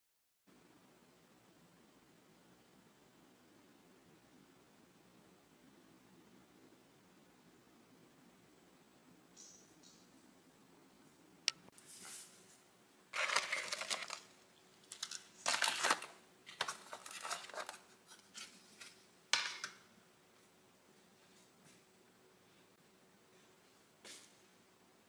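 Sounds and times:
plastic trays crinkling and scraping: 13.1s - 19.7s.

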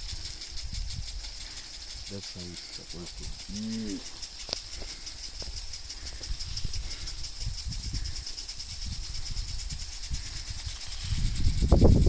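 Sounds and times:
wind rumble on microphone: 0.0s - 2.0s, 4.7s - 12.0s
sprinklers hissing: 0.0s - 12.0s.

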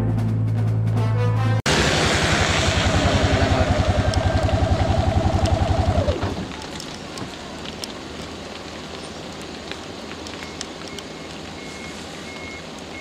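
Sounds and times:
steady hiss with faint ticks: 6.4s - 13.0s.

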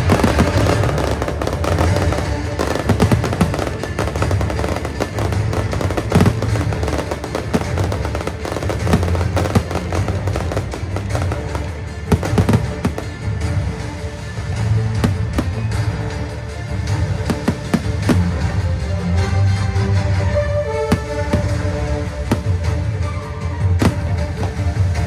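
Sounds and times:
loud fireworks bangs: 0.0s - 13.5s, 15.0s - 15.9s, 17.2s - 18.6s, 20.9s - 22.9s, 23.8s - 25.0s
fireworks bursting and crackling: 0.0s - 18.7s, 20.9s - 25.0s.

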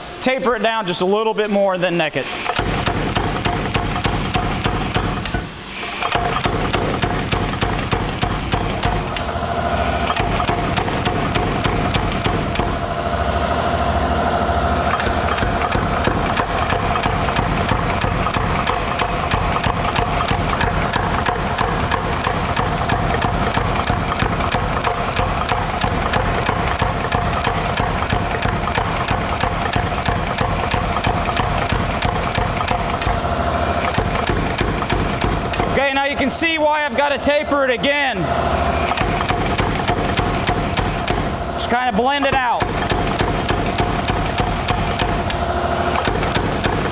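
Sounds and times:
machine hum: 2.1s - 46.9s
power hammer blows: 2.2s - 46.9s.

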